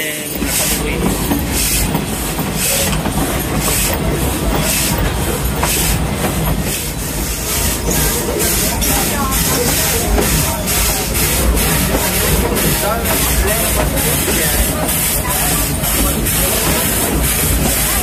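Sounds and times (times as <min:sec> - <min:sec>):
low rumble of moving train: 0:00.0 - 0:18.0
steam locomotive exhaust chuffing: 0:00.0 - 0:18.0.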